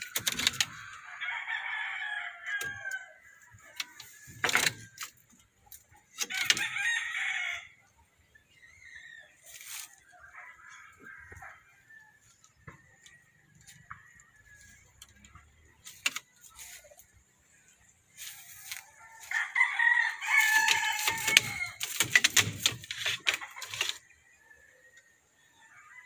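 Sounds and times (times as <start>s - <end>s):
sharp clicks: 0.0s - 1.0s, 3.8s - 6.7s, 14.8s - 16.5s, 20.4s - 24.1s
rooster crowing: 0.4s - 4.7s, 6.3s - 7.8s, 18.7s - 21.9s.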